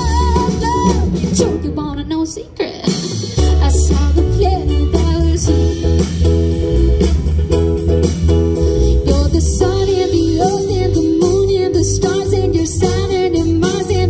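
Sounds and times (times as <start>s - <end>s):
acoustic guitar: 0.0s - 2.1s, 2.9s - 14.0s
woman singing: 0.0s - 5.8s, 8.9s - 14.0s
bass guitar: 0.0s - 14.0s
drums: 0.0s - 14.0s
electric guitar: 2.9s - 14.0s.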